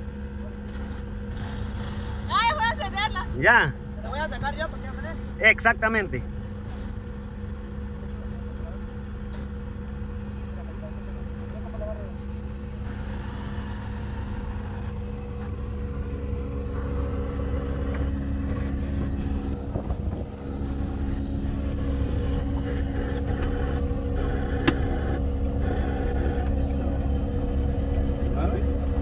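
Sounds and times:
car engine hum: 0:00.0 - 0:29.0
road rumble: 0:00.0 - 0:29.0.

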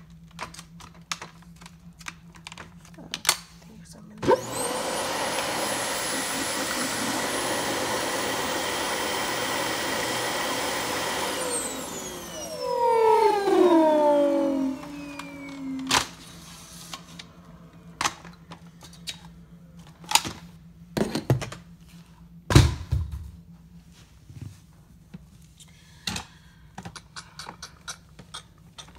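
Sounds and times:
vacuum cleaner motor whining: 0:04.2 - 0:20.4.

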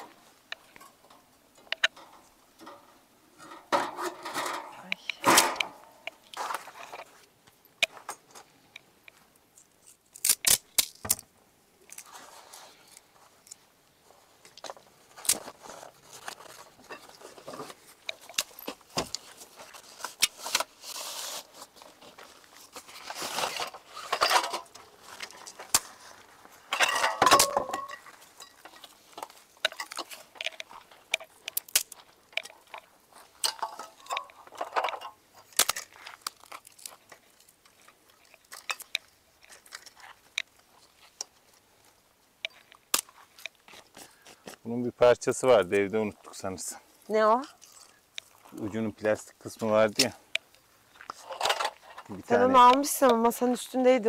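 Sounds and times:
metal grill clinking and rattling: 0:00.0 - 0:06.1, 0:26.7 - 0:28.9, 0:33.4 - 0:36.0
scraping and rustling: 0:00.0 - 0:07.3, 0:11.9 - 0:41.8.

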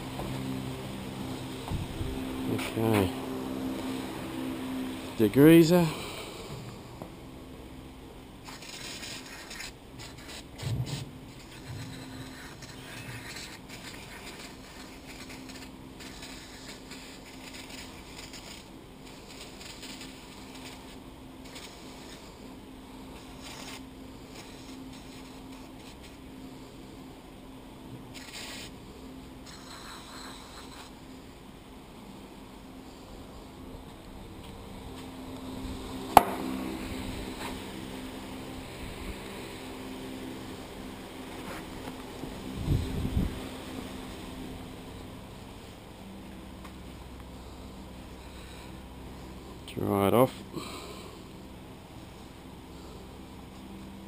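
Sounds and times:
steady low hum: 0:00.0 - 0:54.0
aerosol spray hissing: 0:08.4 - 0:22.3.

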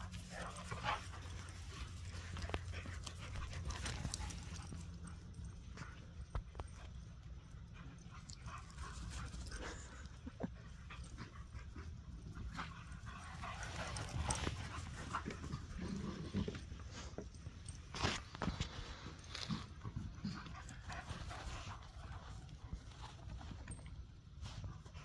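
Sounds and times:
dogs panting: 0:00.0 - 0:25.0
paws thudding and scuffling: 0:00.0 - 0:25.0.

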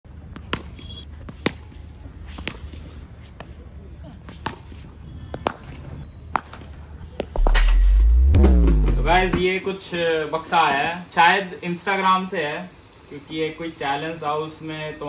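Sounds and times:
deep bass sound: 0:07.4 - 0:09.4
low steady rumble: 0:07.4 - 0:09.4.

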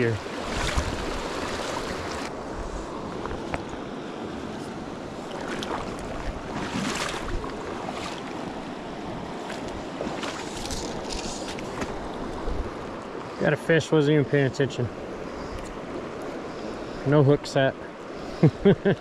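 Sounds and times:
water splashing: 0:00.0 - 0:02.4, 0:05.2 - 0:08.6, 0:09.4 - 0:12.0
creek running over rocks: 0:00.0 - 0:04.2, 0:05.1 - 0:14.8.

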